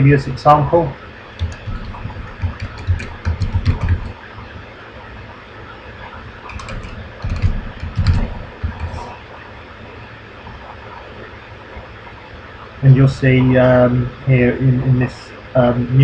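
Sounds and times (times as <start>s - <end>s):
typing on computer keyboard: 1.4s - 4.2s, 6.5s - 9.1s.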